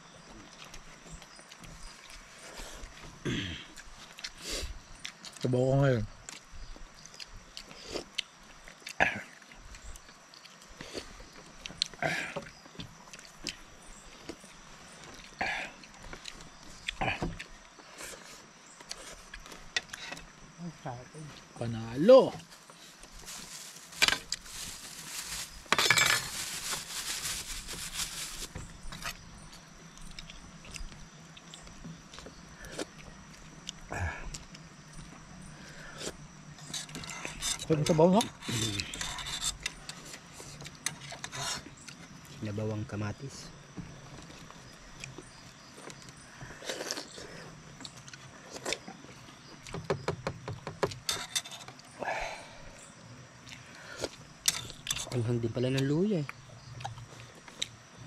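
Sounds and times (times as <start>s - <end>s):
steady high hiss: 16.9s - 30.4s
scraping rustle: 21.8s - 29.6s, 36.6s - 42.1s, 51.0s - 51.8s.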